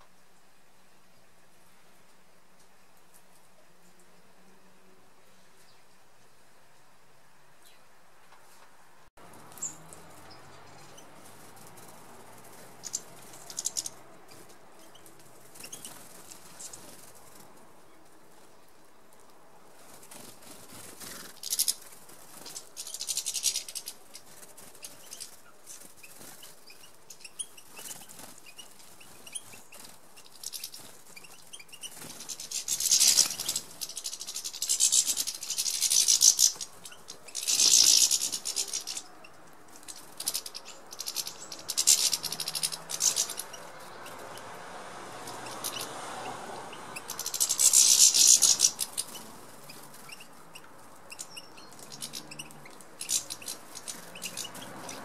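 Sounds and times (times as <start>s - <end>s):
wings fluttering: 9.2s - 55.0s
finches twittering: 9.5s - 17.5s, 20.0s - 44.6s, 45.2s - 55.0s.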